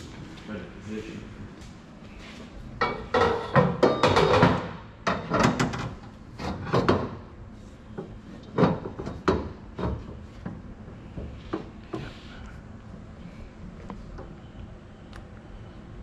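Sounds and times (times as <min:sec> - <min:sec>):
metal tube knocks and clunks: 0:08.0 - 0:10.6.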